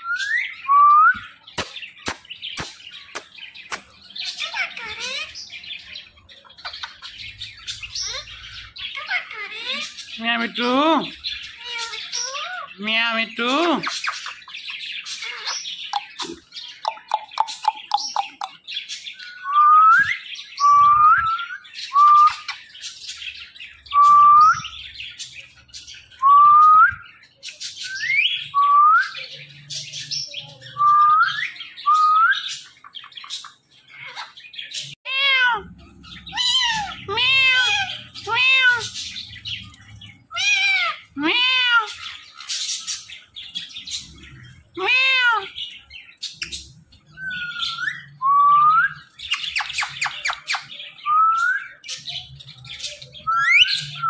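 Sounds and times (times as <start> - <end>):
parakeet harsh squawks: 36.3 - 38.9, 40.3 - 42.2.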